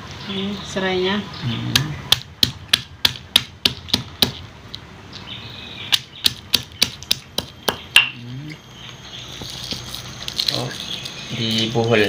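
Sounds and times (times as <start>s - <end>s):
stone pestle knocking in mortar: 1.7s - 4.4s, 5.9s - 8.2s.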